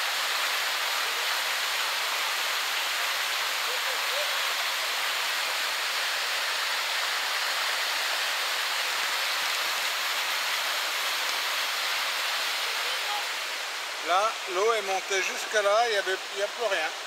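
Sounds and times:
river rushing over rapids: 0.0s - 17.0s.

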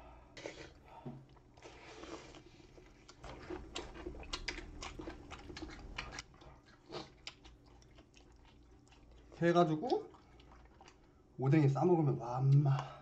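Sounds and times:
biting and chewing crunchy food: 1.4s - 9.3s.

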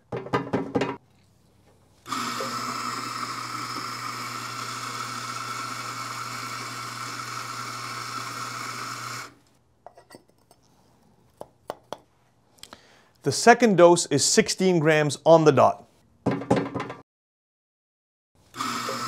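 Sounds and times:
coffee grinder whirring: 2.0s - 9.5s, 18.5s - 19.0s.

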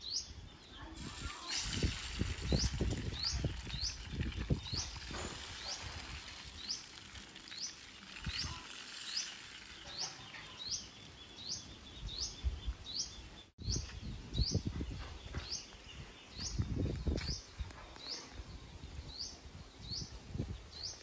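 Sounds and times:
wind rumbling on microphone: 0.0s - 7.2s, 8.1s - 8.8s, 11.8s - 13.0s, 13.6s - 21.0s
small bird chirping: 0.0s - 21.0s.

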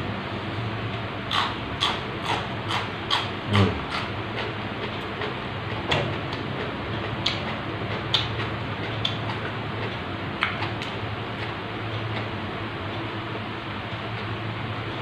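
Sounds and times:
steady low hum: 0.0s - 15.0s
chewing crisp raw vegetables: 1.3s - 12.3s.

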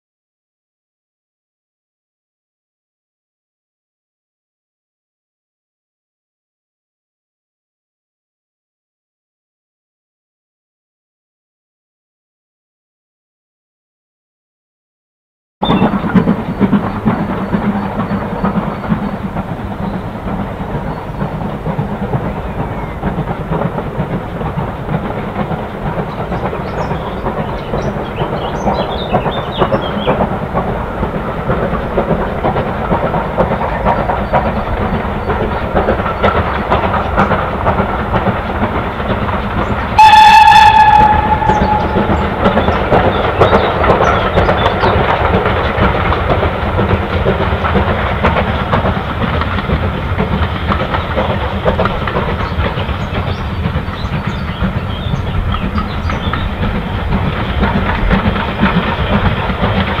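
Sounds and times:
steam locomotive exhaust: 15.6s - 60.0s
steam whistle: 40.0s - 42.6s.

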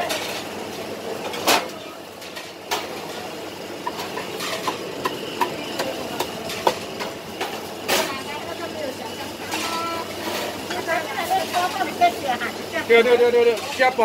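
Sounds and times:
dishes and utensils clinking: 1.2s - 8.3s.

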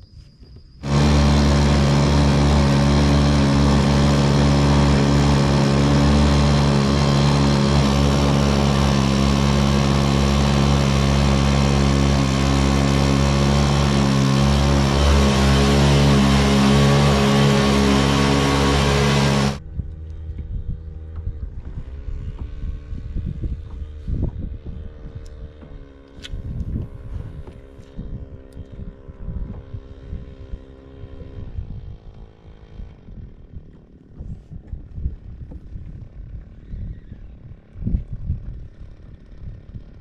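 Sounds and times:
jet-drive motor humming: 0.8s - 22.6s.

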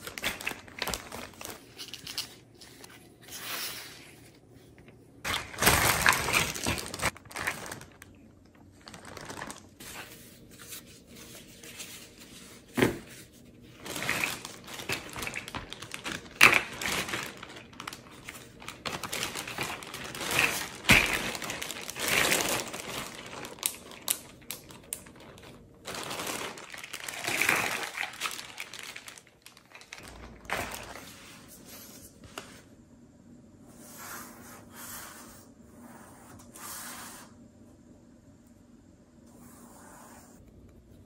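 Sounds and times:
plastic bag crinkling: 0.0s - 2.5s, 5.2s - 10.2s, 13.7s - 31.1s.

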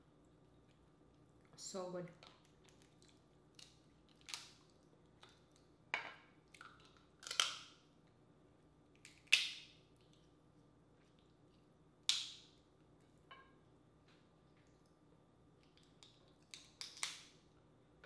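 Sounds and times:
crab shell cracking: 2.2s - 5.6s, 6.6s - 7.8s, 9.0s - 10.2s, 15.6s - 17.4s.

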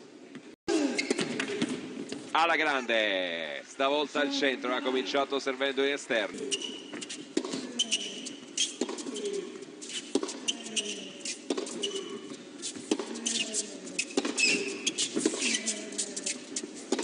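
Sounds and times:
shoes squeaking on court: 0.3s - 2.3s, 6.3s - 17.0s
tennis ball bouncing: 6.5s - 9.4s, 10.0s - 16.0s
racket hitting tennis ball: 10.0s - 16.0s.

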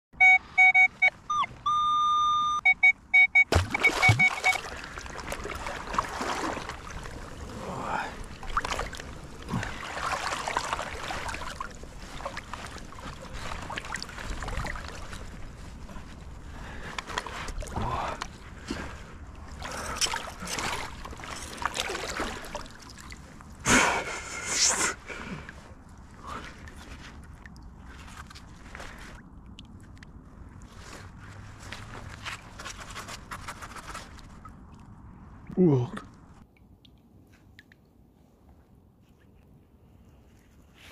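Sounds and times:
metal detector beeping: 0.2s - 4.6s
water sloshing and splashing: 3.1s - 23.6s, 25.1s - 39.6s.

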